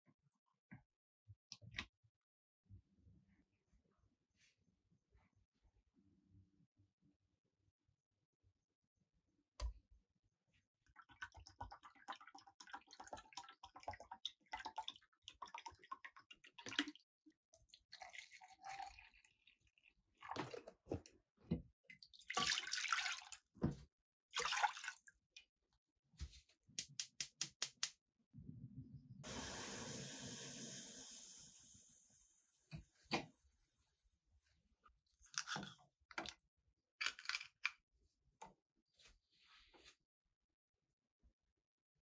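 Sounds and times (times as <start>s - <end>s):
liquid pouring and splashing: 10.9s - 17.0s, 17.6s - 21.0s, 21.9s - 23.5s, 24.3s - 25.2s.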